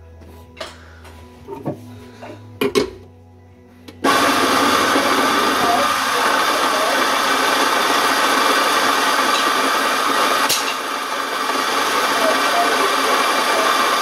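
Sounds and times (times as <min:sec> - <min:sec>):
coffee grinder grinding beans: 0:04.0 - 0:14.0.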